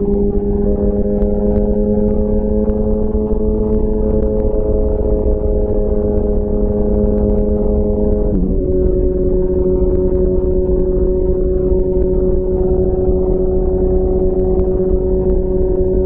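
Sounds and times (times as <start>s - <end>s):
motorcycle engine cruising: 0.0s - 16.0s
road rumble: 0.0s - 16.0s.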